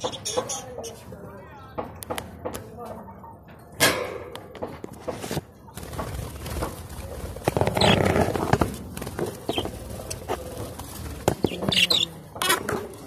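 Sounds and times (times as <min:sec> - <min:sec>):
birds chirping and chattering: 0:00.0 - 0:03.4, 0:05.6 - 0:13.0
wings fluttering: 0:05.3 - 0:13.0.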